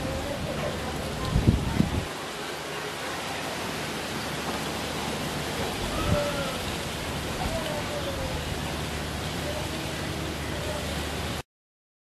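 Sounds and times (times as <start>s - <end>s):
gusty wind: 0.0s - 2.6s
heavy rain hissing: 0.0s - 11.4s.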